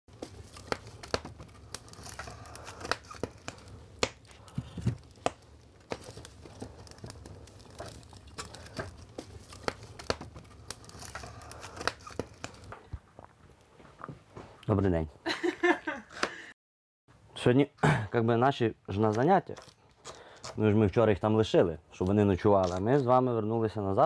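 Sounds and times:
rustling: 0.1 - 14.0
wood fire crackling: 0.1 - 14.2, 18.9 - 21.3.

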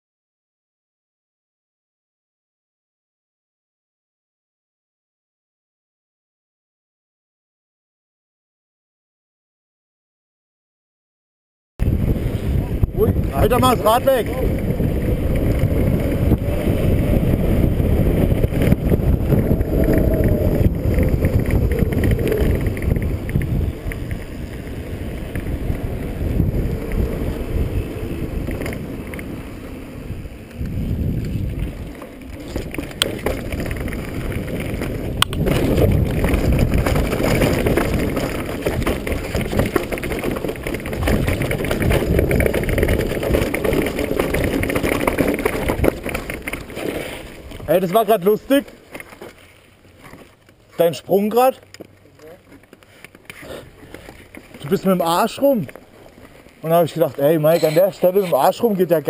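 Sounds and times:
wind buffeting microphone: 11.8 - 48.6
tyre rumble: 11.8 - 59.0.

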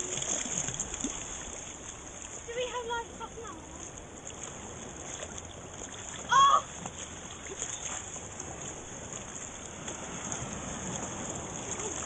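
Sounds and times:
water sloshing and lapping: 0.0 - 12.0
person crying out: 6.3 - 6.7.

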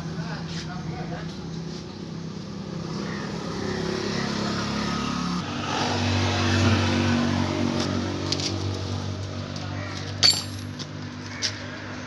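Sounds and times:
motorcycle engine revving: 2.7 - 9.2.

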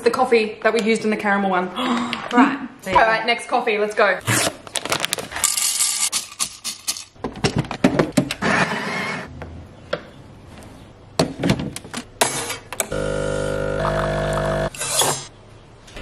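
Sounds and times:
espresso machine pump hum: 12.9 - 14.7.

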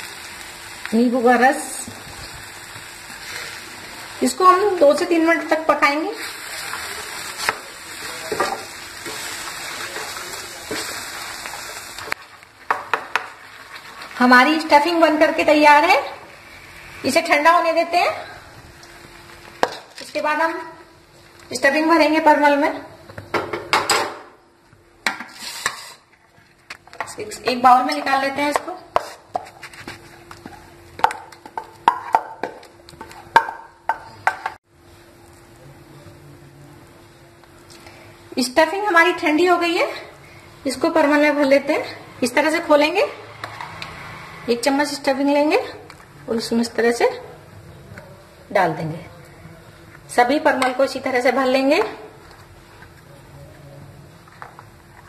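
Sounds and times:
paste sizzling in a pan: 0.0 - 18.0.

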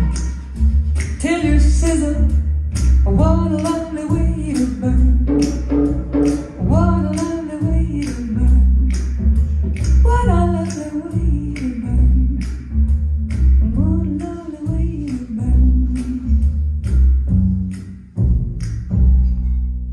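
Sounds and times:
deep bass: 0.0 - 19.9
person singing: 3.1 - 5.4, 6.6 - 9.0.

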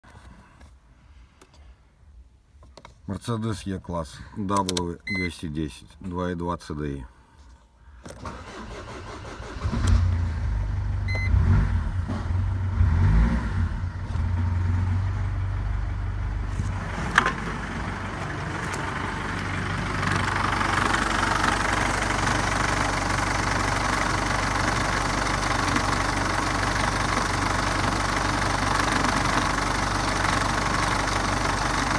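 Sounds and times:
diesel engine starting and idling: 8.1 - 31.9.

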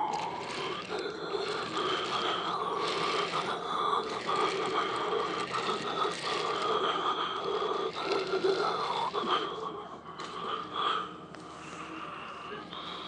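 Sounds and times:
wheels clicking on track: 0.0 - 9.3
model train motor whirr: 0.0 - 9.6.

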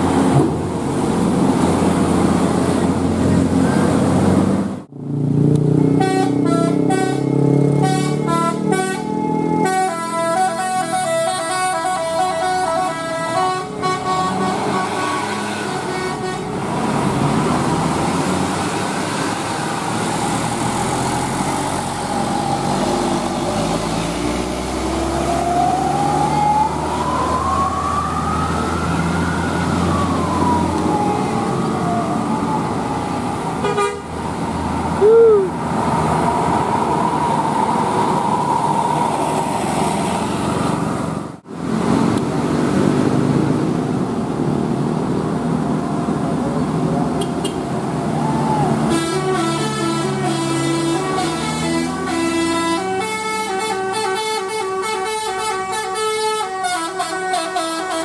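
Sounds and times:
bus engines: 0.0 - 58.0
passing traffic: 0.0 - 58.0
multi-tone bus horn melody: 5.8 - 16.7, 33.6 - 34.2, 48.8 - 58.0.

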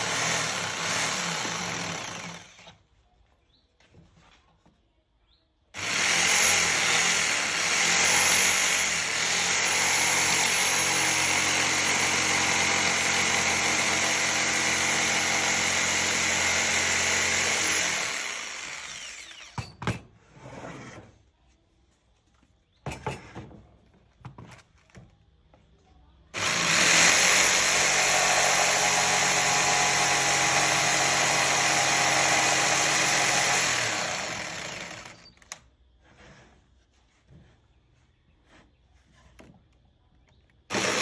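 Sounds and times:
jigsaw cutting wood: 0.0 - 2.8, 5.8 - 19.6, 26.4 - 35.6, 40.7 - 41.0.

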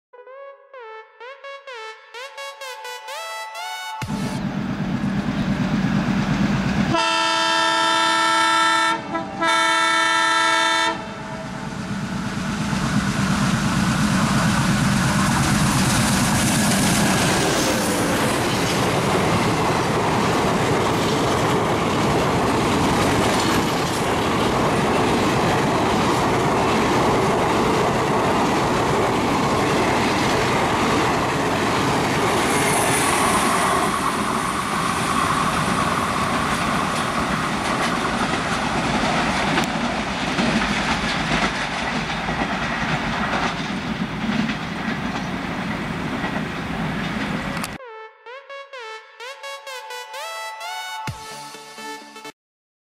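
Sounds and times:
locomotive horn blasts: 0.1 - 4.4, 6.9 - 11.7
train coaches clattering past: 4.1 - 47.8
diesel engine chugging: 4.4 - 7.0.

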